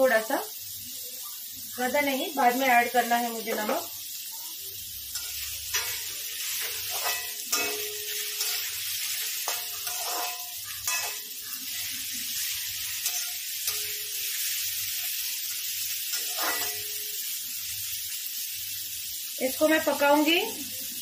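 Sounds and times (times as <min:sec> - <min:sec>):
vegetables sizzling in hot oil: 0:00.0 - 0:21.0
spatula scraping and clinking on pan: 0:03.4 - 0:03.9, 0:05.1 - 0:17.2.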